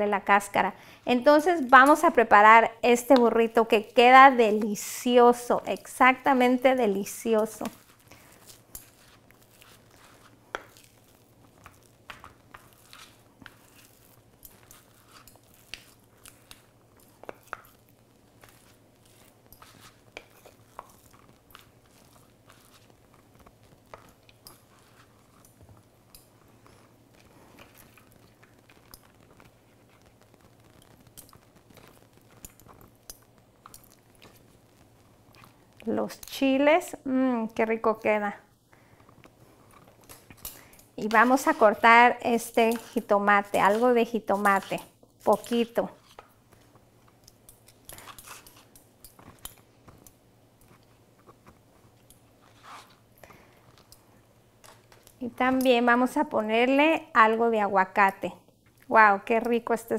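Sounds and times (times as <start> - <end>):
soft handling of slices: 6.4 - 36.3, 38.7 - 55.9
knife slicing a tomato: 42.6 - 46.2, 47.8 - 48.7.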